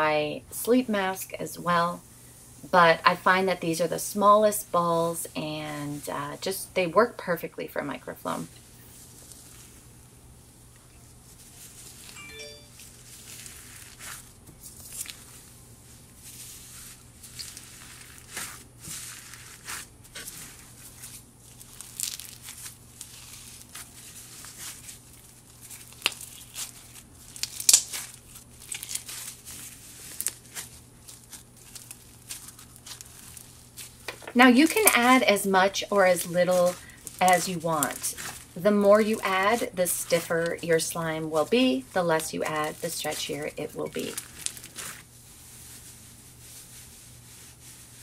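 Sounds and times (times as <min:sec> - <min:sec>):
slime crackling and snapping: 0:19.2 - 0:35.2, 0:35.9 - 0:40.6, 0:43.9 - 0:45.1.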